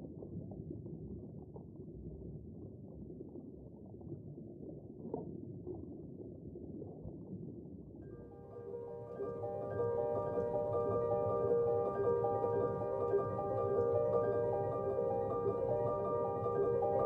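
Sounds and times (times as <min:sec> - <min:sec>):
mallet percussion music: 0:08.4 - 0:17.0.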